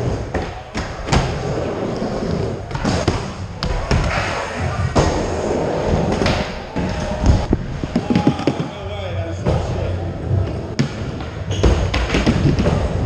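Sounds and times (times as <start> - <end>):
skateboard wheels rolling: 0.0 - 8.7.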